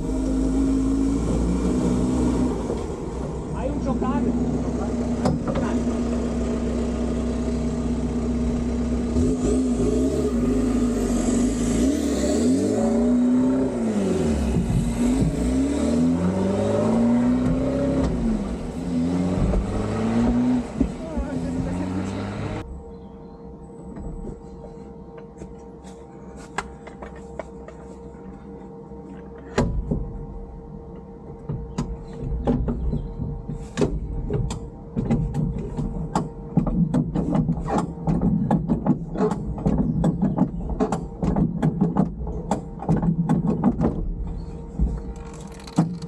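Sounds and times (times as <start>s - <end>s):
steady hum: 0.0s - 46.0s
mechanical clicking and knocking: 30.9s - 46.0s.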